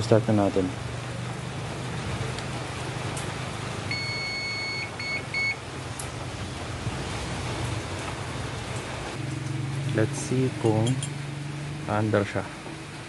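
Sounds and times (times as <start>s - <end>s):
high electronic beeps: 3.9s - 5.6s.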